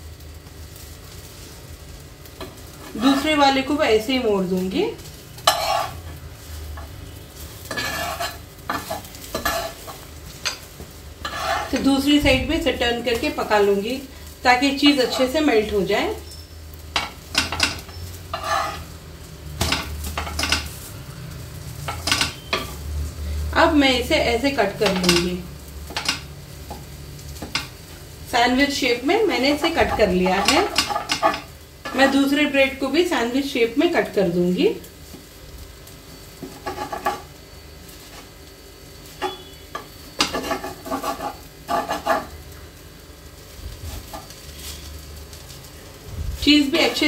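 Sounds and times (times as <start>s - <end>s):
food sizzling: 0.0s - 47.0s
metal spatula scraping griddle: 2.4s - 3.7s, 5.4s - 12.2s, 16.2s - 19.0s, 29.2s - 32.4s, 36.4s - 37.3s, 39.0s - 42.5s, 43.7s - 45.0s.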